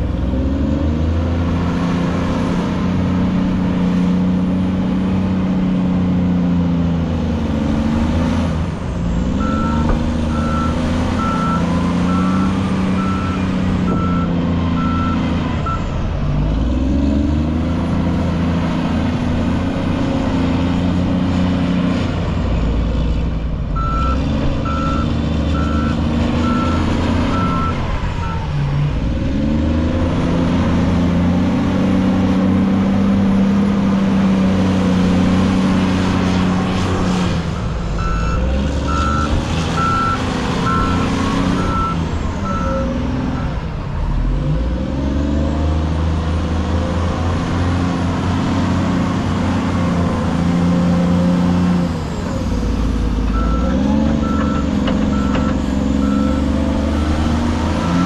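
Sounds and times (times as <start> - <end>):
wheel loader diesel engine revving: 0.0 - 58.0
reversing alarm beeping: 9.4 - 15.9, 23.8 - 28.4, 37.8 - 43.6, 53.3 - 58.0.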